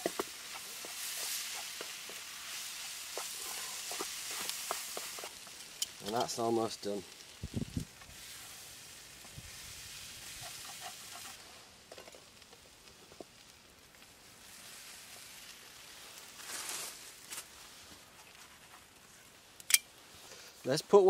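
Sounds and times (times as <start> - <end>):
food sizzling in a frying pan: 0.0 - 18.2
faint crackles: 0.0 - 20.8
dry leaves rustling: 13.0 - 19.5.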